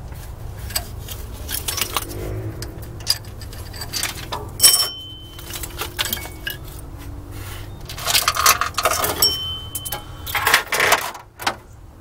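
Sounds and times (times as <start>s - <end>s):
metal parts clinking and rattling: 0.6s - 2.2s, 3.0s - 6.9s, 7.8s - 11.3s
ringing metallic note: 2.1s - 6.6s.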